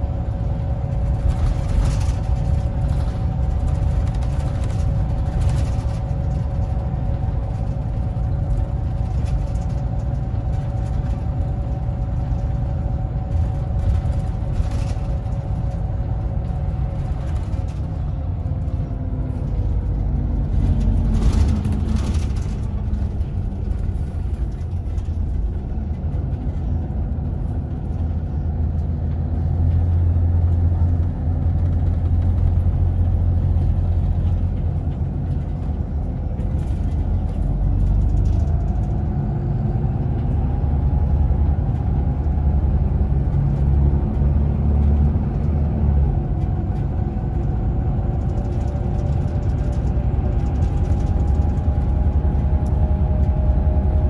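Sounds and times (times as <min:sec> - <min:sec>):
bus engine and road rumble: 0:00.0 - 0:54.0
short clatter: 0:19.4 - 0:26.8.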